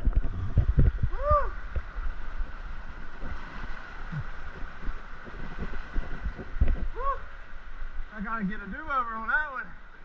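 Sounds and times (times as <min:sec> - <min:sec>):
low thumps and knocks: 0:00.0 - 0:07.0
floodwater rushing: 0:00.0 - 0:10.0.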